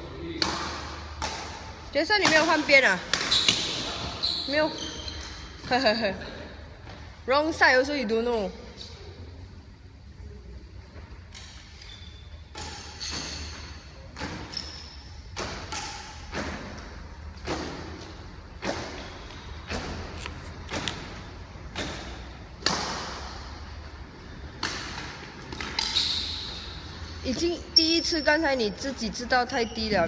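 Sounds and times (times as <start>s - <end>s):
shuttlecock hit with rackets: 0.4s - 3.8s, 20.7s - 23.5s, 24.5s - 26.0s.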